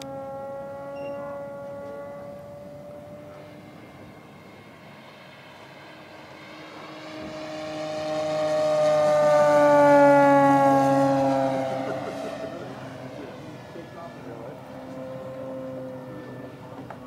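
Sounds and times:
model plane motor whining overhead: 0:00.0 - 0:17.0.

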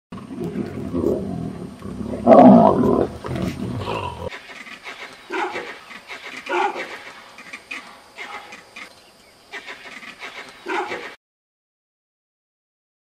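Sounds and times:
vultures squabbling: 0:00.2 - 0:08.9, 0:09.5 - 0:11.2
scattered higher bird calls: 0:03.0 - 0:11.2.

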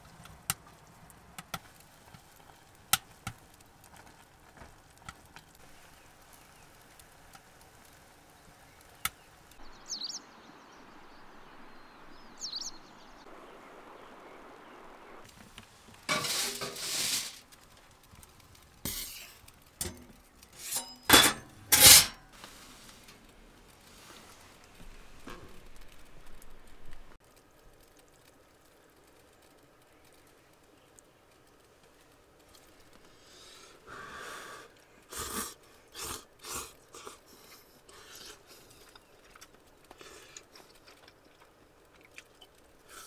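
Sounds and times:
rain hissing: 0:00.0 - 0:43.0
chopsticks scraping in a pot: 0:16.1 - 0:17.4, 0:20.5 - 0:22.3
dishes clattering on metal counter: 0:19.8 - 0:22.2.

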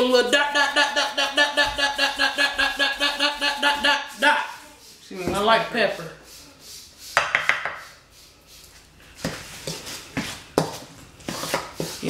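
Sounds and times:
utensil scraping a steel bowl: 0:02.8 - 0:12.0.

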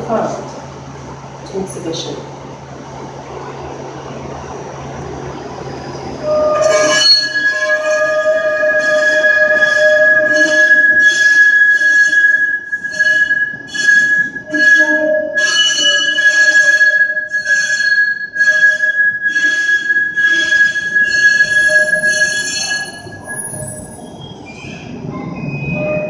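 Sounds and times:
streetcar hum: 0:00.0 - 0:26.0
wheels squealing against rail: 0:06.2 - 0:26.0.

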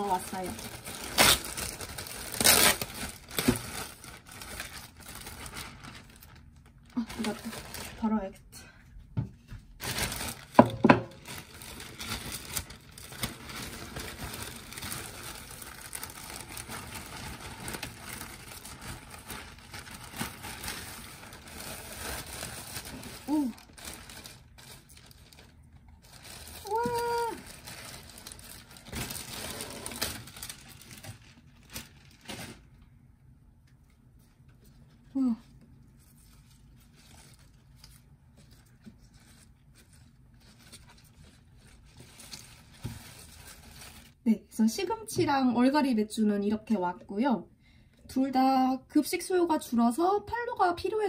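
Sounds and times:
plastic bag crinkling: 0:00.0 - 0:08.3, 0:09.7 - 0:32.9, 0:35.9 - 0:44.2.

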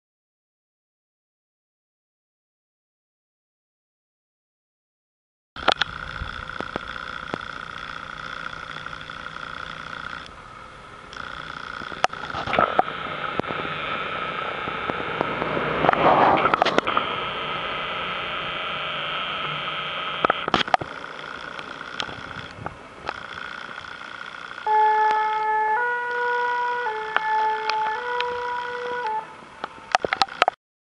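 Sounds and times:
two-tone siren: 0:05.6 - 0:30.5
van driving past: 0:12.8 - 0:19.6.

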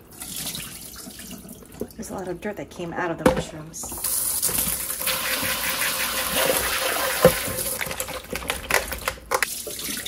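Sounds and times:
water splashing into sink: 0:03.8 - 0:10.0
sink spray hissing: 0:04.0 - 0:07.7.

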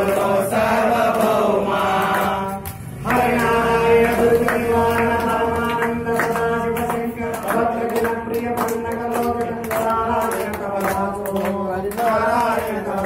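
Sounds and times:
men singing devotional song: 0:00.0 - 0:13.0
sharp rhythmic beats: 0:00.0 - 0:13.0.

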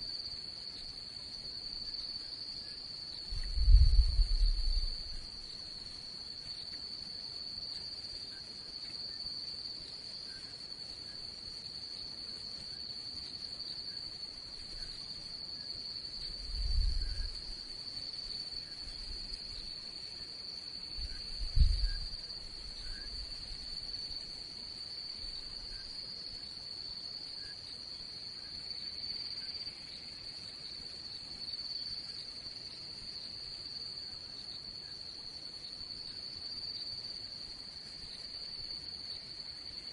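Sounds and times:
crickets trilling: 0:00.0 - 0:39.9
dull low thumps: 0:03.3 - 0:05.2, 0:21.4 - 0:22.1.

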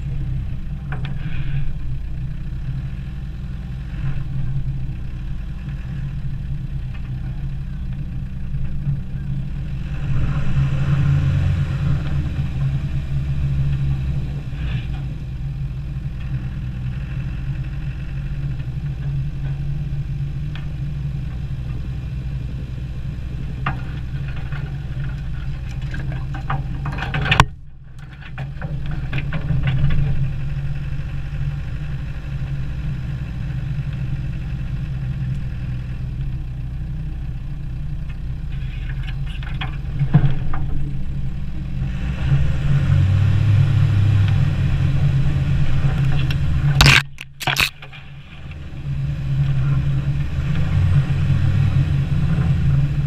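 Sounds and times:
engine running: 0:00.0 - 0:53.0
brush scraping against vehicle body: 0:46.8 - 0:48.4.

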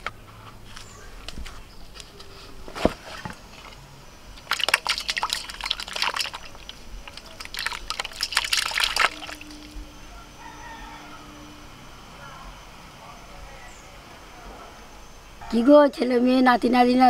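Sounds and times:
fish splashing in a steel bowl: 0:04.4 - 0:09.8.

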